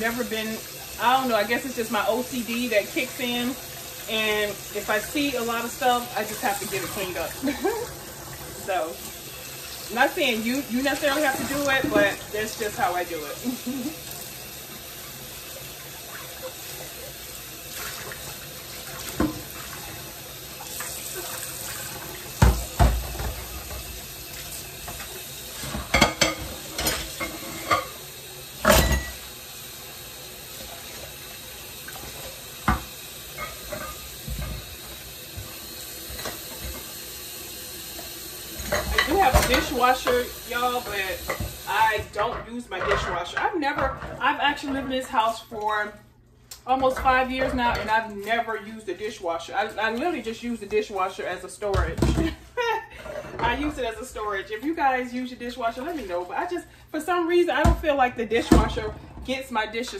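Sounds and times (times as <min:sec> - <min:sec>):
tap running into sink: 0:20.6 - 0:27.4, 0:30.6 - 0:37.1, 0:37.9 - 0:42.1
dishes clinking against sink: 0:24.9 - 0:28.0, 0:28.6 - 0:29.3, 0:31.9 - 0:36.9, 0:38.6 - 0:45.2, 0:51.7 - 0:52.4, 0:57.6 - 0:59.0.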